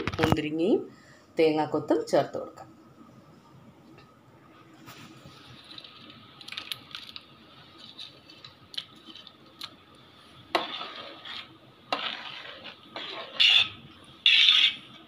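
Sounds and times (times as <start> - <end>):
metal ladle scraping in pot: 10.5 - 14.9.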